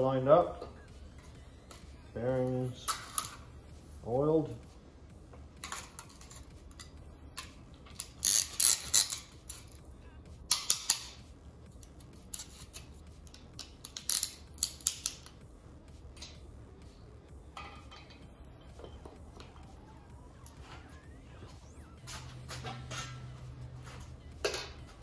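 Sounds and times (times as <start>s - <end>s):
metallic clicks and clinks: 12.3s - 15.4s.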